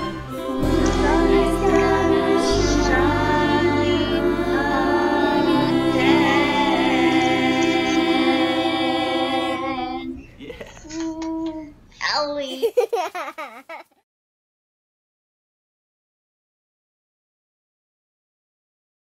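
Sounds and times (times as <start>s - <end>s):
large choir with instruments: 0.0s - 10.1s.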